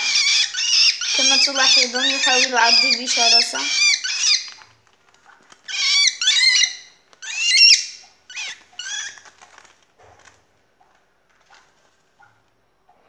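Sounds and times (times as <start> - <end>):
cockatiel screeching: 0.0 - 4.6, 5.6 - 9.3.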